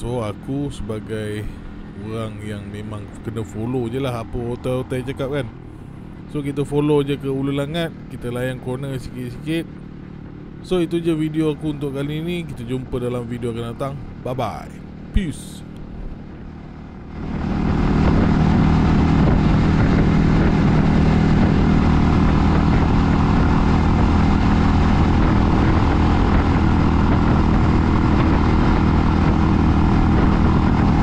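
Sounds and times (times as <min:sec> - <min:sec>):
motorcycle engine running: 0:00.0 - 0:31.0
wind rush over microphone: 0:17.0 - 0:31.0.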